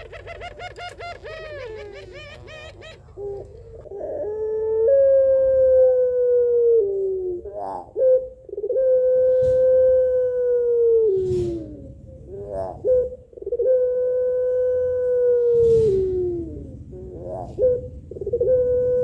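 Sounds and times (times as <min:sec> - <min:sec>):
dove cooing: 0:00.0 - 0:19.0.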